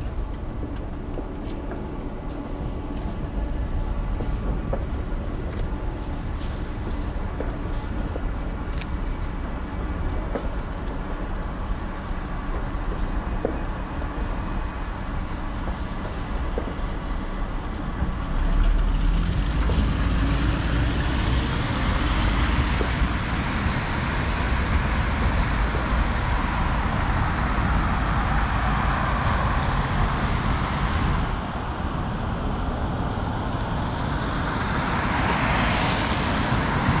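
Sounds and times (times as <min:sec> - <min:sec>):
tram pulling away with whine: 0:00.0 - 0:37.0
tyres hissing on wet road: 0:18.0 - 0:31.4, 0:32.2 - 0:37.0.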